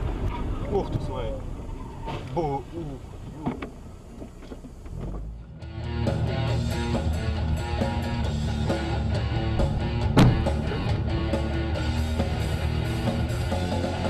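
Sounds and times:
rock music with electric guitar: 5.5 - 14.0
sharp bang: 9.5 - 11.0.

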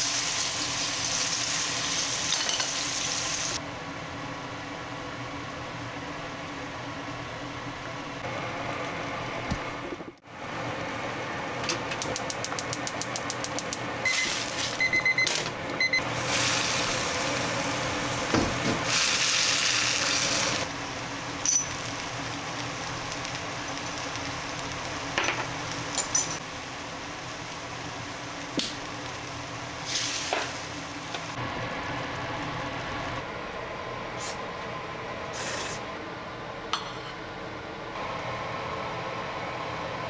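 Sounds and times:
sauce sizzling in frying pan: 0.0 - 3.6, 16.1 - 31.4.

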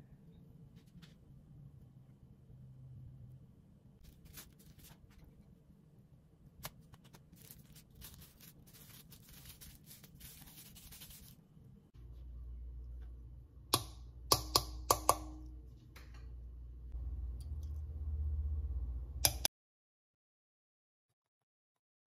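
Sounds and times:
spoon tapping metal bowl: 13.8 - 15.5.

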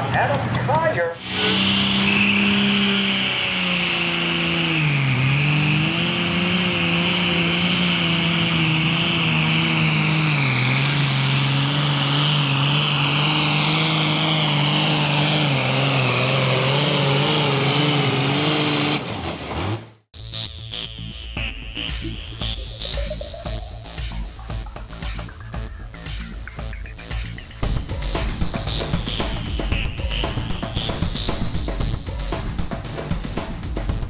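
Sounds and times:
diesel tractor engine at full power: 0.0 - 20.1, 27.1 - 34.0
high steady whistle: 1.2 - 5.4.

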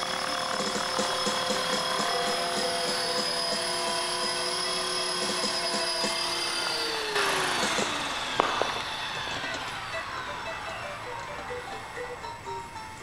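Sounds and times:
rc helicopter motor whine: 0.0 - 13.0.

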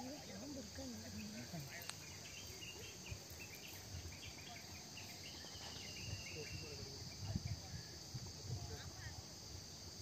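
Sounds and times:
crickets trilling: 0.0 - 10.0
short insect chirps: 0.0 - 10.0.

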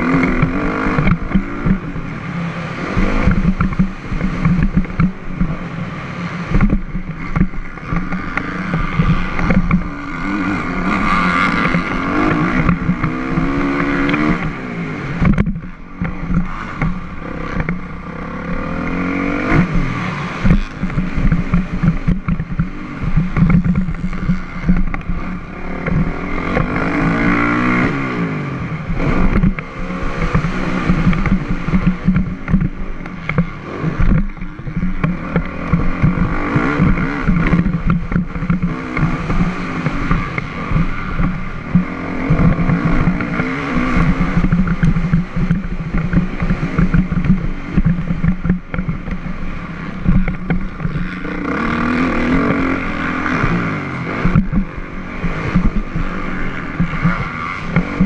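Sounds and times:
dirt bike engine revving: 0.0 - 58.0
knocks from bike hitting bumps: 19.5 - 27.9.

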